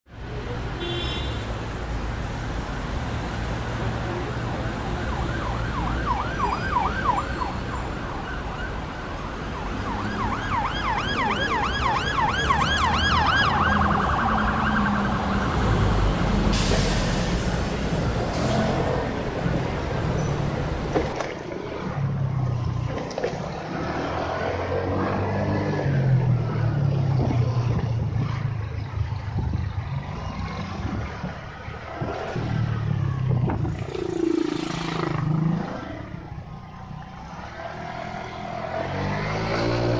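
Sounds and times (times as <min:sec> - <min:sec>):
road traffic engines: 0:00.0 - 0:39.9
siren yelping: 0:04.8 - 0:15.9.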